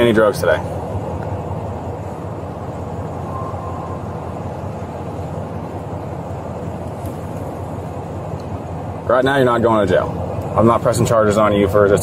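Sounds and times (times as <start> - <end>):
low rumbling background noise: 0.0 - 12.0.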